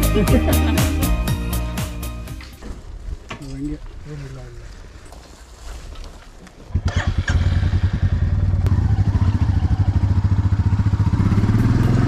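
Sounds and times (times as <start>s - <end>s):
motorcycle engine starting and idling: 6.6s - 12.0s.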